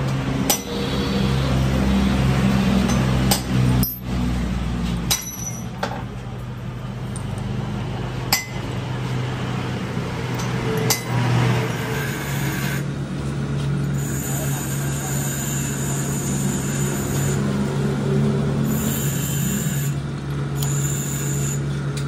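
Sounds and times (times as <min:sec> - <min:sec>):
metal tools clinking: 0:03.7 - 0:04.2, 0:05.1 - 0:06.1.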